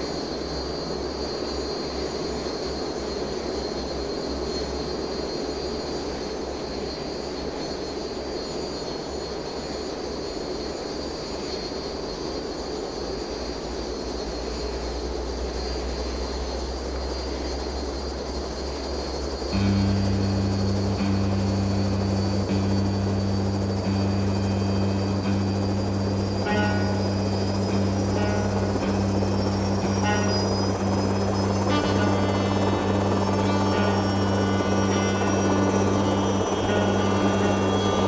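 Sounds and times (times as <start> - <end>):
thin high whine: 14.3 - 38.0
helicopter engine and rotor: 14.4 - 38.0.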